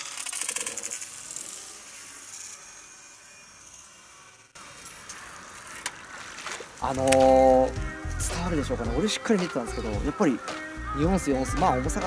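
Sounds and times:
reel spool spinning hiss: 0.0s - 8.6s.

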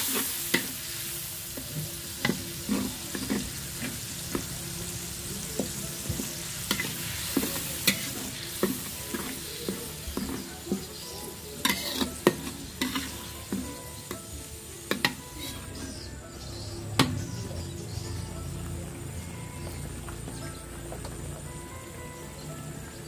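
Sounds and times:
metal spoon scraping a wok: 0.0s - 16.1s
paste sizzling in a wok: 0.0s - 23.0s.

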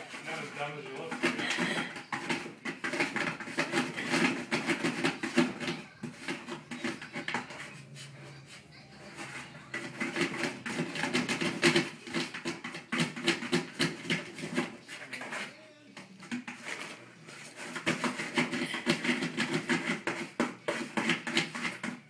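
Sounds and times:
dog scratching cardboard box: 0.0s - 15.6s, 16.2s - 22.0s.

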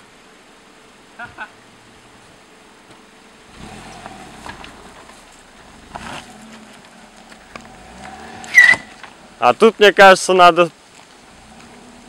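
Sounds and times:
car engine revving: 3.3s - 12.0s
crunching over rocks: 3.9s - 9.6s, 10.7s - 12.0s.

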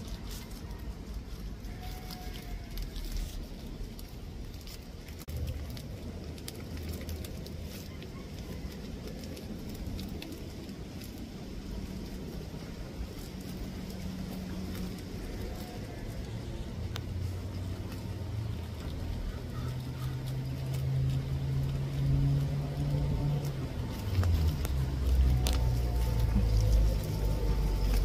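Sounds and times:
passing vehicle engine hum: 0.0s - 28.0s.

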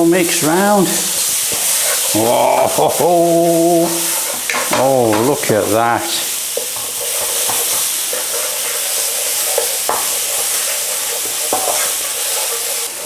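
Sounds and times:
onion paste sizzling in oil: 0.0s - 13.0s
spatula scraping pan: 0.3s - 13.0s.

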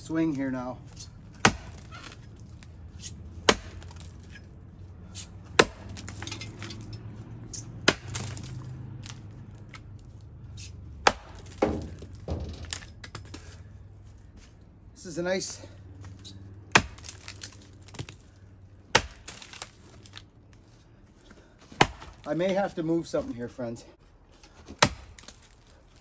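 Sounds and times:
axe chopping into tree trunk: 0.9s - 2.3s, 3.0s - 4.4s, 5.2s - 6.8s, 7.5s - 9.8s, 10.6s - 13.4s, 16.7s - 18.2s, 18.9s - 20.2s, 21.6s - 22.4s, 24.7s - 25.6s.

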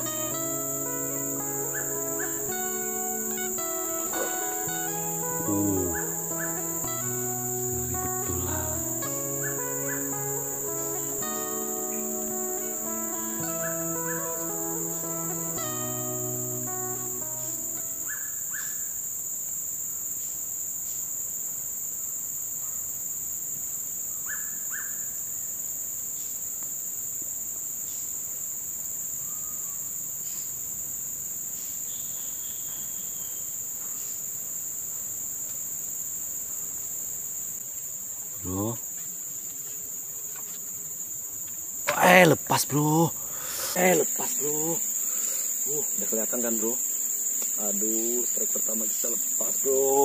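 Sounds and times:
background music: 0.0s - 18.1s
insect chorus drone: 0.0s - 50.0s.

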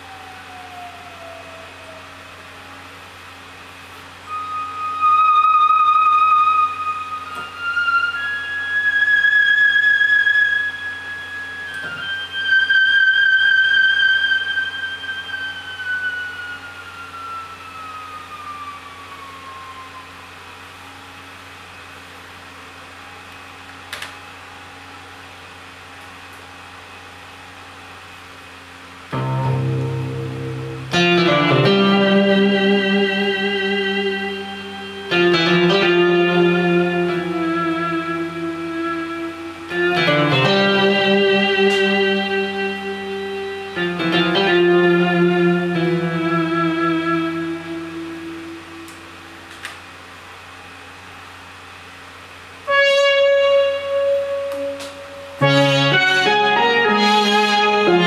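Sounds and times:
steady hum and hiss: 0.0s - 58.0s
sustained synthesizer lead note: 4.2s - 19.8s, 29.1s - 49.4s, 52.7s - 58.0s
click: 48.8s - 49.8s.

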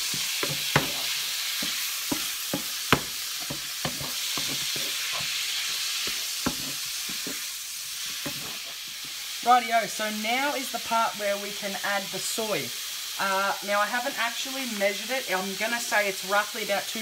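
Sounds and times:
wooden spoon knocking and scraping pan: 0.0s - 5.4s, 6.0s - 7.4s, 8.1s - 9.2s
food sizzling in a frying pan: 0.0s - 17.0s.

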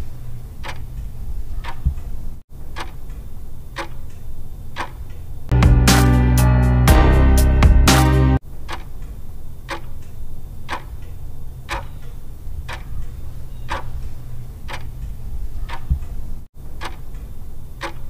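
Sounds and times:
clock ticking: 0.0s - 0.8s, 1.6s - 2.0s, 2.7s - 3.2s, 3.8s - 4.2s, 8.7s - 8.9s, 9.7s - 10.1s, 10.7s - 11.1s, 11.7s - 14.1s, 14.7s - 15.0s, 15.6s - 16.1s, 16.7s - 18.0s.

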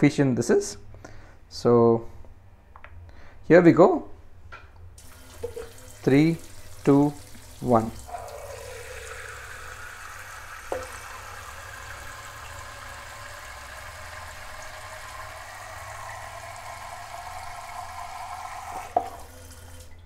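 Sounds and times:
water spraying into plastic jug: 5.0s - 19.8s.

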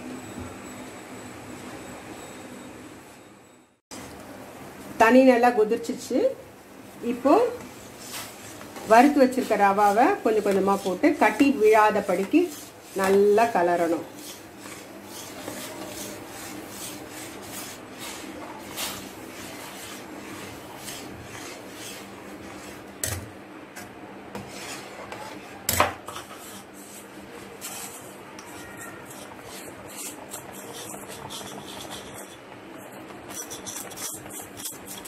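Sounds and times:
spatula scraping steel pan: 7.3s - 23.3s, 24.3s - 35.0s.

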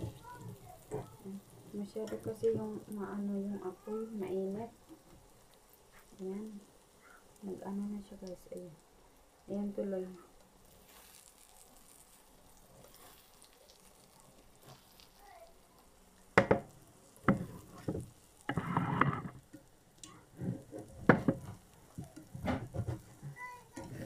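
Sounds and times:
spatula scraping and tapping pan: 0.0s - 2.9s, 10.6s - 15.2s, 16.2s - 24.0s
omelette sizzling in a frying pan: 0.0s - 24.0s.

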